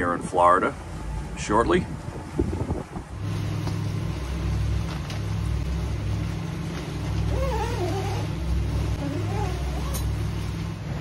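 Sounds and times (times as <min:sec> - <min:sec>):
boat engines droning: 0:00.0 - 0:11.0.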